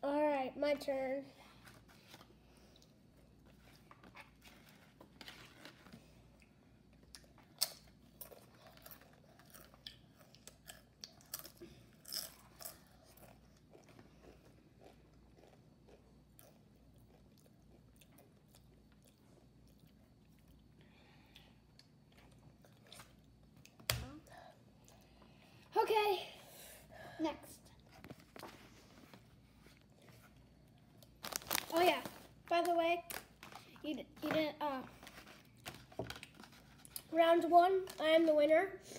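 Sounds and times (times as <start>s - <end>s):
faint crunching of a chip: 2.0s - 23.8s, 29.7s - 33.8s.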